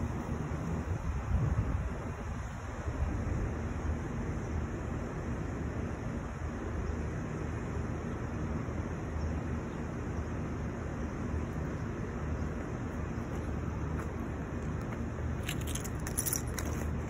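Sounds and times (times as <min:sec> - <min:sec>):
low outdoor background rumble: 0:00.0 - 0:17.0
small clicks and rustles: 0:14.0 - 0:17.0.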